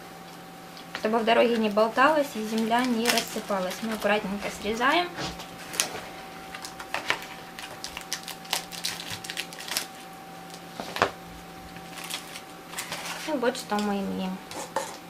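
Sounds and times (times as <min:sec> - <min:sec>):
faint steady hum: 0:00.0 - 0:15.0
wrapping crinkling and rustling: 0:00.8 - 0:14.1
packing tape being cut: 0:02.5 - 0:04.1, 0:05.3 - 0:11.1, 0:11.8 - 0:13.3.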